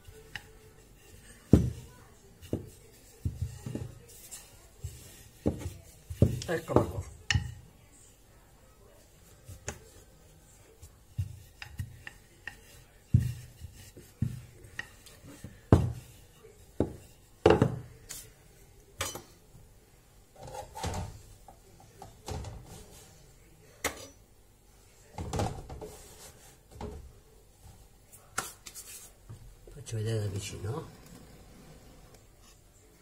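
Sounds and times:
soft clattering and rubbing: 0.0s - 7.7s, 8.8s - 19.4s, 20.3s - 23.4s, 24.0s - 32.9s
rolling pin knocking on countertop: 1.5s - 4.1s, 4.8s - 7.6s, 11.1s - 16.2s, 16.8s - 17.9s.

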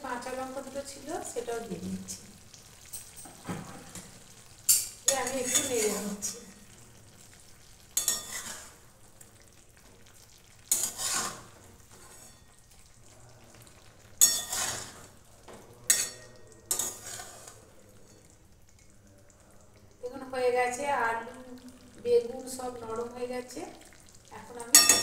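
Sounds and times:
metal spatula scraping metal pan: 4.7s - 6.6s, 8.0s - 8.8s, 10.7s - 12.6s, 14.2s - 15.2s, 15.9s - 17.6s.

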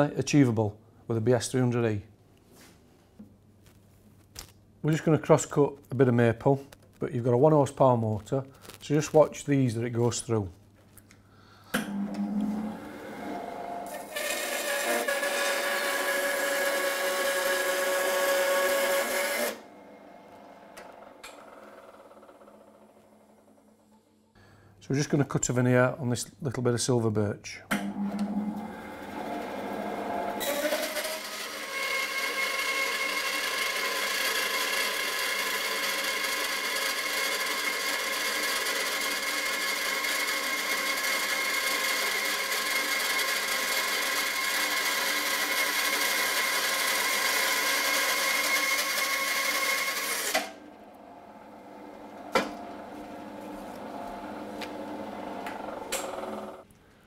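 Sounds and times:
bandsaw cutting wood with whine: 11.8s - 23.1s, 28.0s - 56.7s.

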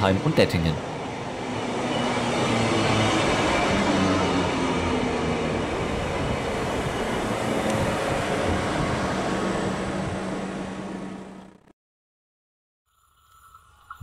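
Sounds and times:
train wheels rumbling on rail: 0.0s - 11.5s.

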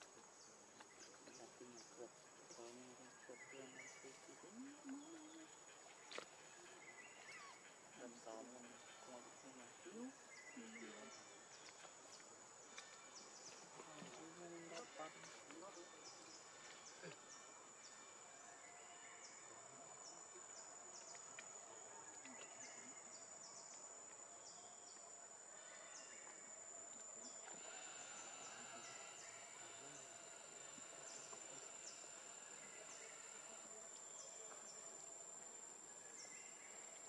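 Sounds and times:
high-pitched insect drone: 27.4s - 33.8s.

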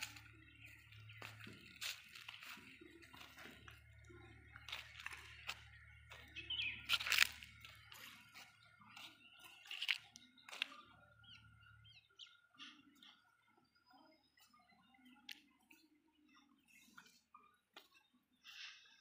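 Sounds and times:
footsteps crunching on leaves: 0.0s - 10.7s
faint bird chirps: 0.0s - 19.0s.

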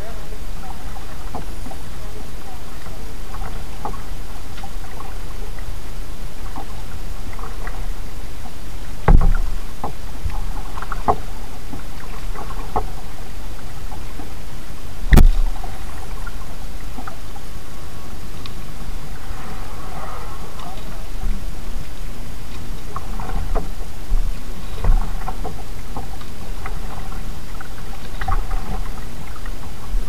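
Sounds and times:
paddle splashing and dripping water: 0.0s - 30.0s
steady low rumble: 0.0s - 30.0s
paddle knocking against kayak: 9.0s - 13.1s, 20.6s - 30.0s.

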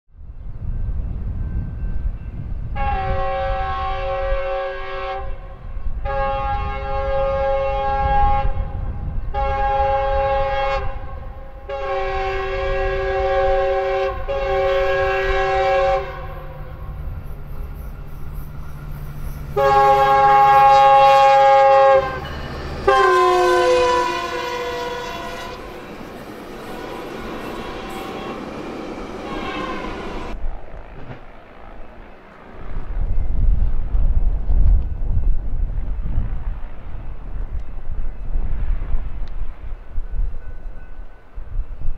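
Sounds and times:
train engine and wheels rumbling: 0.1s - 41.9s
locomotive air horn blasts: 2.7s - 17.0s, 19.2s - 30.4s.

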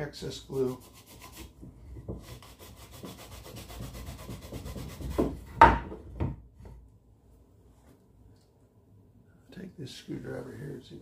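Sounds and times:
cloth rubbing on wooden board: 2.2s - 5.4s.

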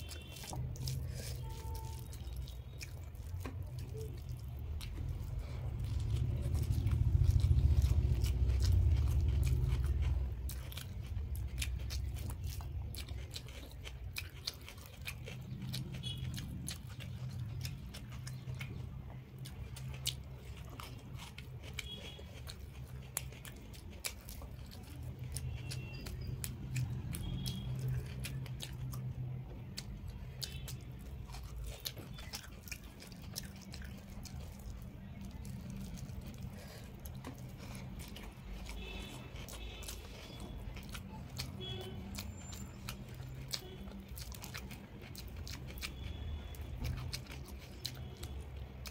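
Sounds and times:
chewing with wet smacks: 0.0s - 48.9s
steady low hum: 2.4s - 14.3s.

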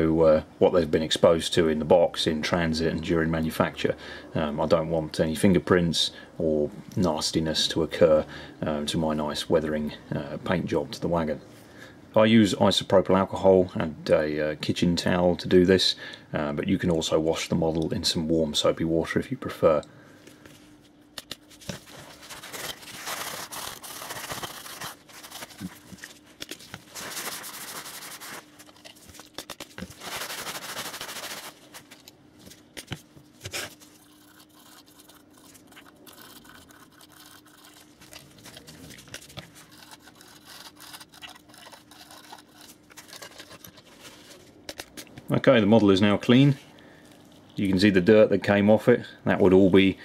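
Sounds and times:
faint steady hum: 0.0s - 50.0s
towel scrubbing plastic: 21.6s - 44.6s.

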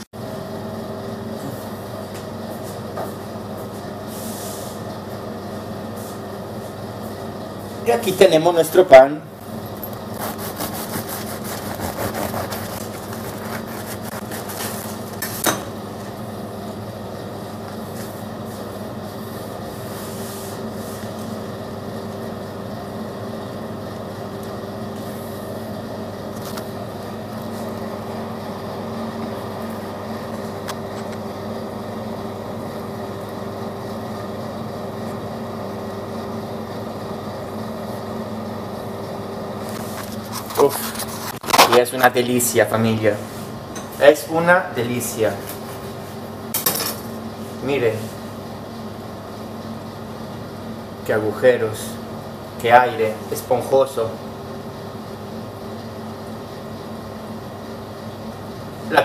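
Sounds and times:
machine hum: 0.0s - 59.0s
bread crust crackling: 10.2s - 15.2s.

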